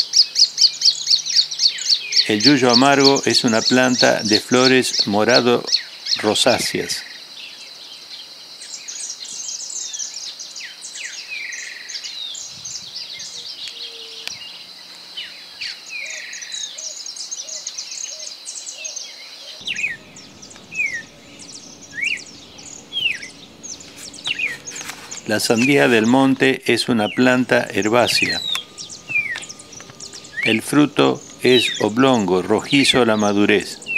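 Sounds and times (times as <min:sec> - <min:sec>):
small birds chirping and singing: 0:00.0 - 0:33.9
bird whistling sliding note: 0:19.6 - 0:33.9
high insect buzz: 0:19.6 - 0:33.9.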